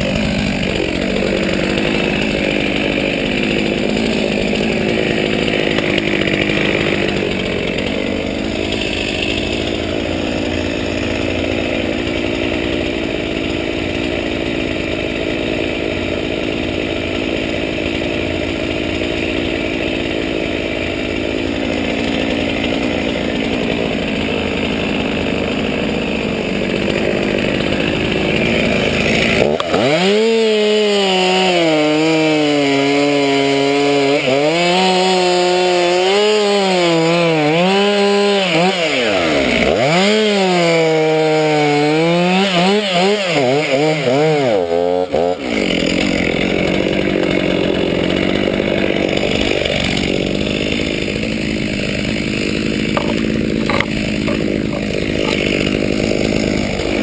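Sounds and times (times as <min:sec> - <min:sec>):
chainsaw running: 0:00.0 - 0:57.0.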